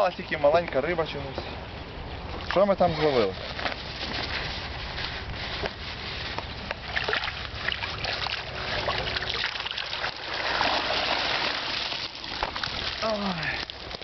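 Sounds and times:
water pouring and splashing: 6.7s - 14.0s.

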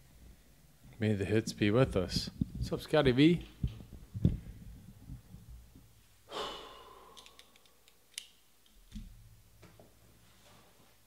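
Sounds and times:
person exhaling: 6.2s - 7.8s.

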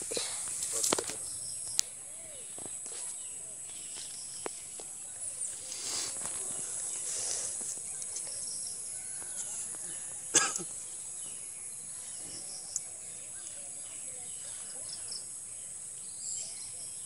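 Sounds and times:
sticks and weeds rustling: 0.0s - 10.0s
steady high hiss: 0.0s - 17.0s.

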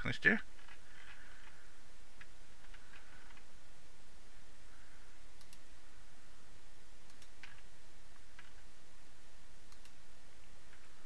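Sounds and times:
faint hiss and low hum: 0.0s - 11.0s
computer mouse clicks: 5.4s - 5.7s, 7.0s - 8.6s, 9.7s - 10.0s.

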